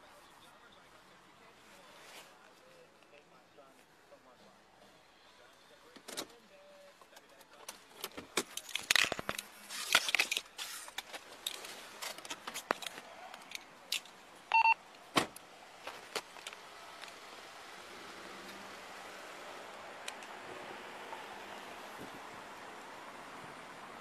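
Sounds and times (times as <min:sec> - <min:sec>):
short electronic beep: 0:14.5 - 0:14.8.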